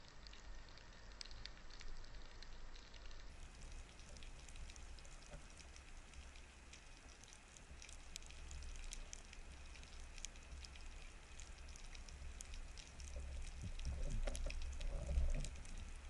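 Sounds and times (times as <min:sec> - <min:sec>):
low water rumble: 0:00.0 - 0:16.0
underwater clicks crackling: 0:00.2 - 0:16.0.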